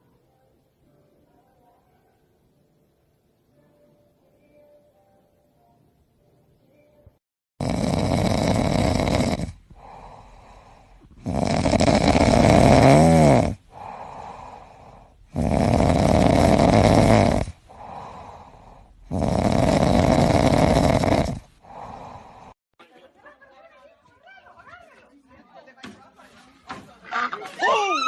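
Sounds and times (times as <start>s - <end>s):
cat snoring: 7.6s - 22.6s
cat breathing: 8.6s - 12.7s, 13.4s - 22.6s.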